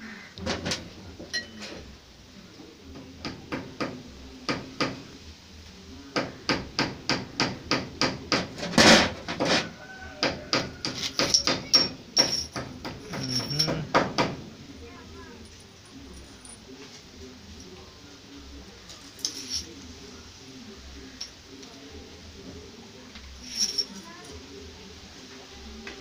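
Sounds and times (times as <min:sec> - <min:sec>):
metal parts tapping and clicking: 0:10.9 - 0:14.2
metal parts clattering: 0:11.0 - 0:13.9, 0:19.1 - 0:19.7, 0:23.3 - 0:24.0.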